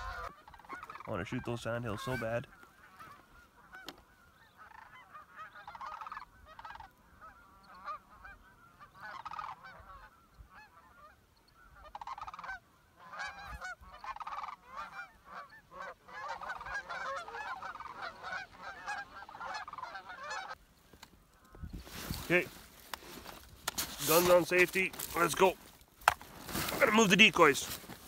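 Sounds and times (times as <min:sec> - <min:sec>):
cranes calling in flight: 0:00.0 - 0:01.2, 0:01.8 - 0:20.6.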